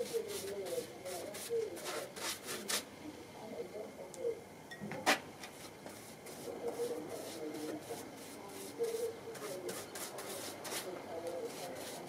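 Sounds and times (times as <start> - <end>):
scratchy brush strokes on wood: 0.0 - 2.9, 5.6 - 12.0.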